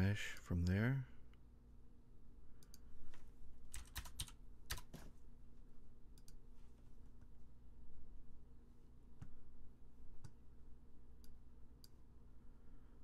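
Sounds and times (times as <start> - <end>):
faint steady hum: 0.0 - 13.0
keyboard keystrokes and clicks: 3.7 - 5.1.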